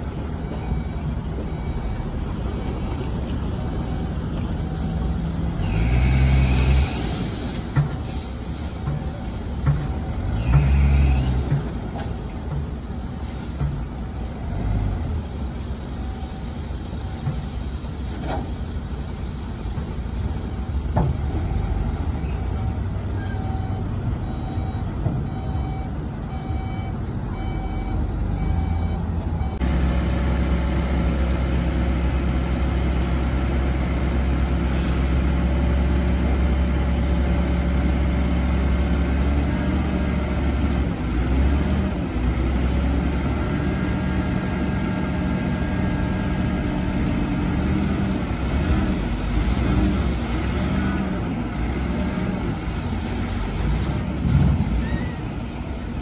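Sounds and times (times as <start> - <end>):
diesel dump truck engines: 0.0 - 56.0
reversing alarm beeping: 0.4 - 3.0, 20.5 - 29.7.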